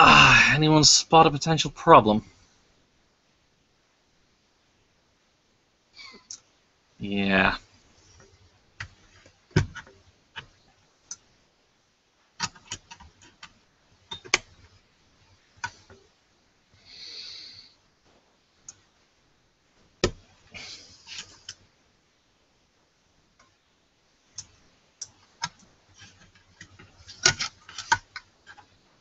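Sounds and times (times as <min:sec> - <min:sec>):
computer parts clicking and tapping: 0:12.4 - 0:14.8, 0:15.4 - 0:16.1, 0:24.4 - 0:28.8.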